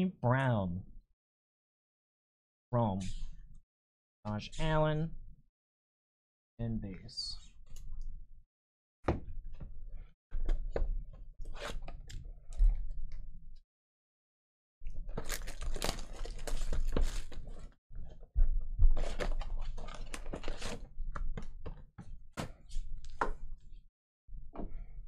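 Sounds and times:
plastic shrink wrap crinkling: 15.1 - 17.6
foil packs rustling: 15.1 - 17.7.

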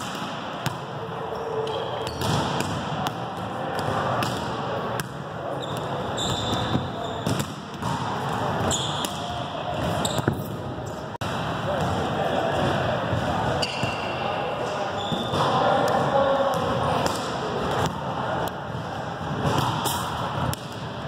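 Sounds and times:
volleyballs bouncing and thudding: 0.0 - 1.3, 1.9 - 14.1, 15.0 - 21.0
sneakers squeaking on hardwood: 5.6 - 7.4, 8.6 - 10.6.

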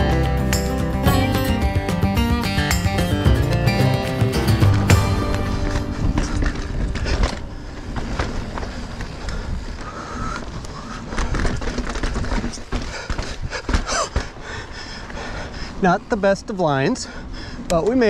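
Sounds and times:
bike rattling: 2.7 - 18.0
bike tyres rolling on dirt: 4.3 - 18.0.

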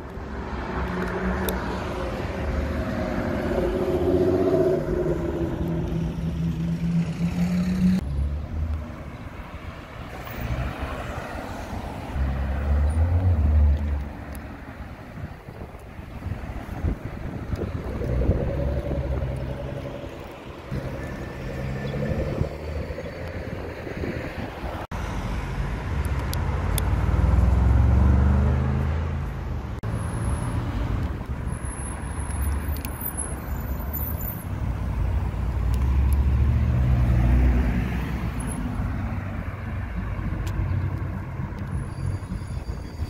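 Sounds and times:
traffic noise: 0.0 - 43.0
cars accelerating past: 0.3 - 9.1, 16.3 - 25.6, 26.5 - 29.2, 35.5 - 41.2.

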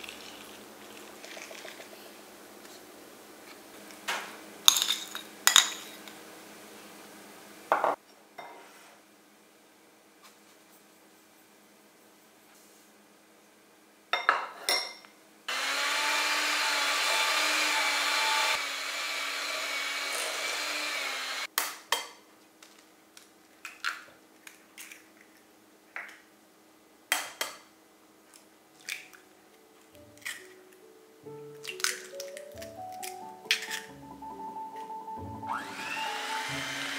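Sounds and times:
electric hand mixer beating: 15.5 - 21.5, 35.5 - 36.9
eggs cracking on bowl: 31.5 - 33.9.

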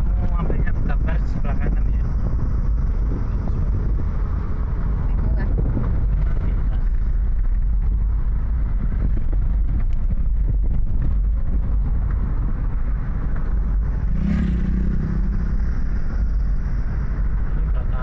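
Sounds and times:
road and engine rumble in car: 0.0 - 18.0.

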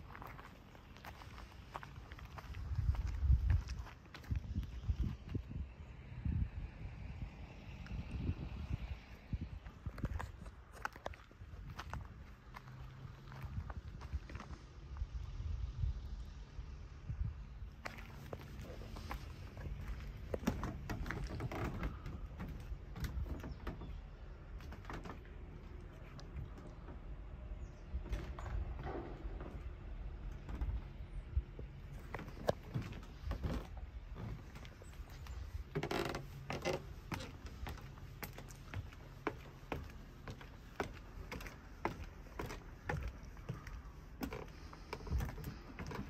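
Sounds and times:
footsteps on gravel: 0.0 - 5.3, 9.6 - 14.7, 17.8 - 23.5, 28.1 - 46.0
low rumble: 13.3 - 35.8.

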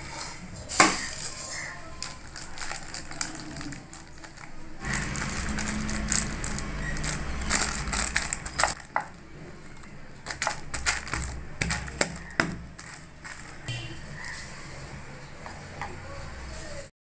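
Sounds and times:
plastic sheet crinkling: 0.6 - 14.6
hands patting mixture: 1.0 - 9.2, 9.8 - 14.6.

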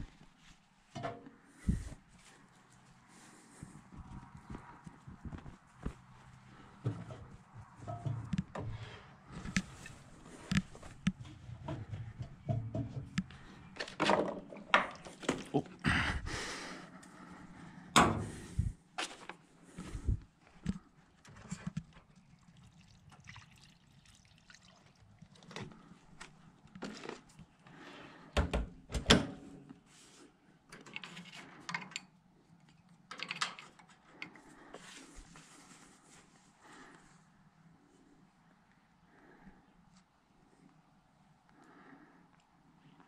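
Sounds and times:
liquid pouring from bottle: 22.5 - 25.5.

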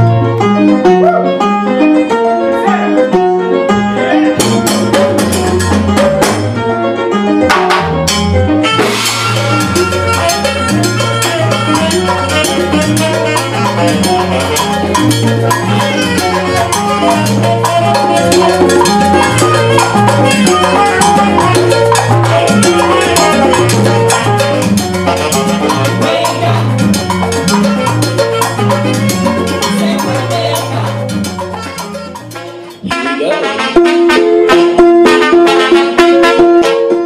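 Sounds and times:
congas: 0.0 - 37.0
piano: 0.0 - 37.0
upright bass: 0.0 - 37.0
drum kit: 4.0 - 37.0
saxophone playing melody: 8.4 - 37.0.

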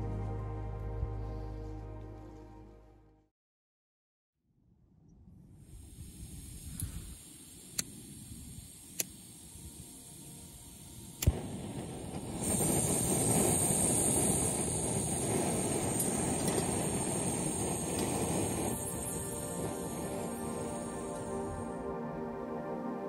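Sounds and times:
gas stove burner hissing: 5.6 - 21.8
lighter clicks: 7.7 - 8.0, 8.9 - 9.3.

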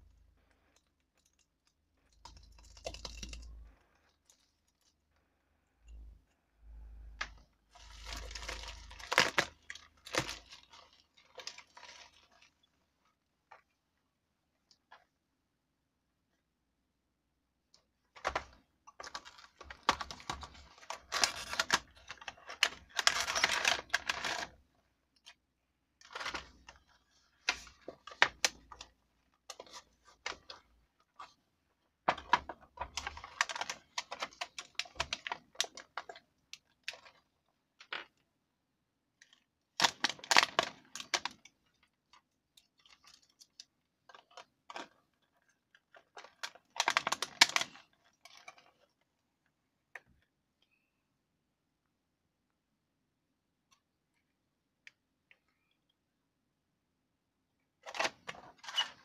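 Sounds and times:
packaging crackling and rustling: 7.2 - 12.8, 18.2 - 24.6.

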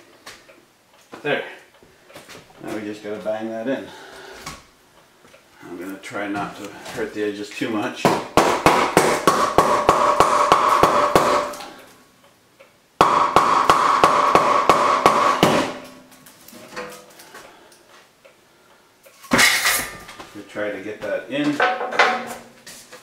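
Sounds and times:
hammer striking wooden block: 8.0 - 11.6, 13.0 - 16.0.

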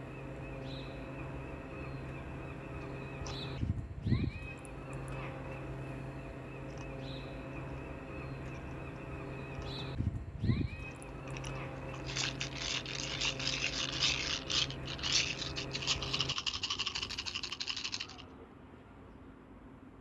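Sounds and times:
low steady hum: 0.0 - 20.0
dry scratching rattle: 11.0 - 18.2.

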